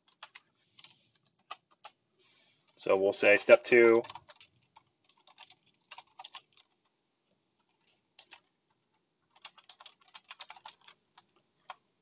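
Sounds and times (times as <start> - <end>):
computer keyboard typing: 0.0 - 2.0, 4.0 - 7.0, 7.6 - 11.8.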